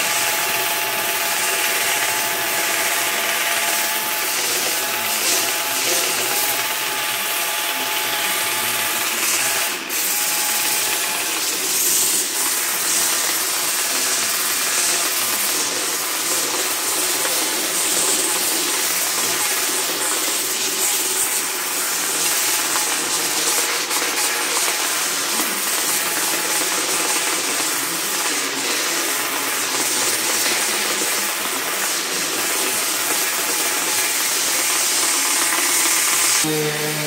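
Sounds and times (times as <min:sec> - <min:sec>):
angle grinder sanding wood: 0:00.0 - 0:37.0.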